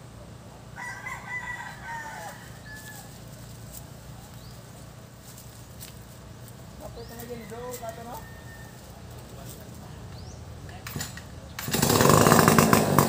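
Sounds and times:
low outdoor rumble: 0.0s - 13.0s
rooster crowing: 0.7s - 3.4s, 6.8s - 9.3s.

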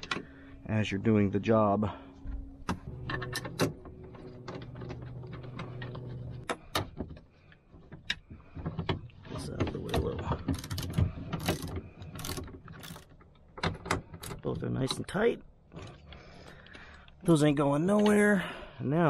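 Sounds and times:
low hum: 0.0s - 8.5s.

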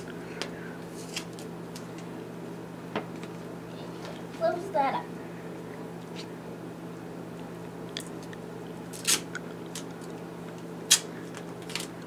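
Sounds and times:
steady low hum: 0.0s - 12.0s
duct tape ripping: 8.9s - 10.1s, 10.9s - 12.0s.

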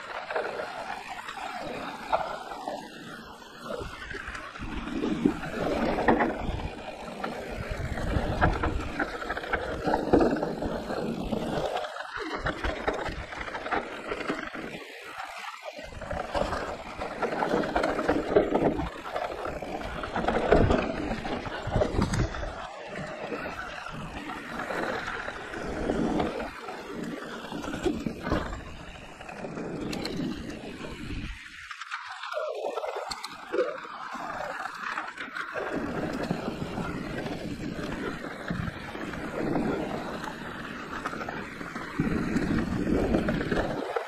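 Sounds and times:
bike rattling: 0.0s - 44.0s
wind buffeting microphone: 3.7s - 14.5s, 15.9s - 31.5s, 35.6s - 44.0s.

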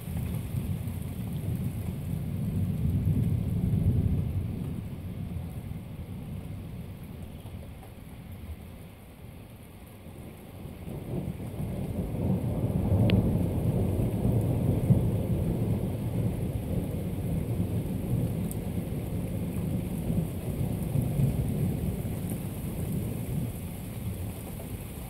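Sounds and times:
thunder rumbling: 0.0s - 7.2s, 10.6s - 24.9s.

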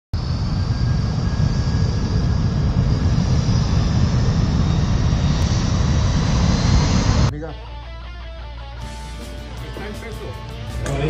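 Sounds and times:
jet engines rumbling in flight: 0.2s - 7.3s.

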